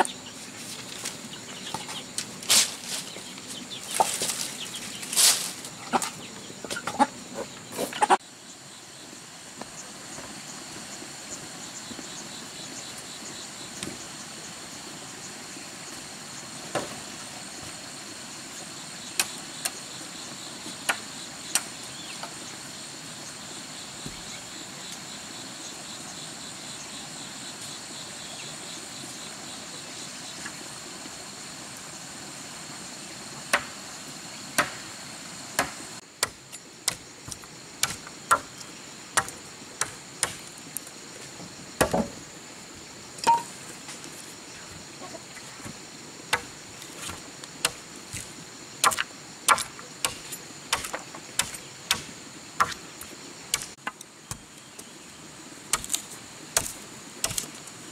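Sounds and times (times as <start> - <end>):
hand tool striking: 43.2 - 43.5.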